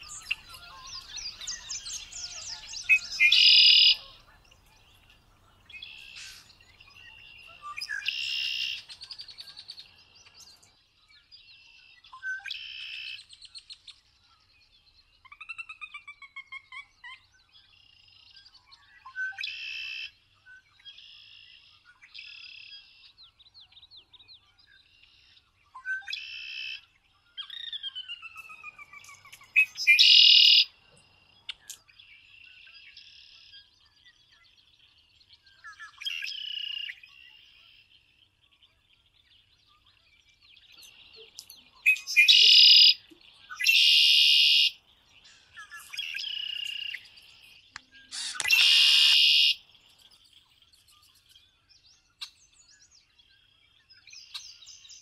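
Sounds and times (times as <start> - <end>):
blackbird song with buzzy trill: 0.0 - 55.0
bird falling whistles and calls: 48.1 - 49.6.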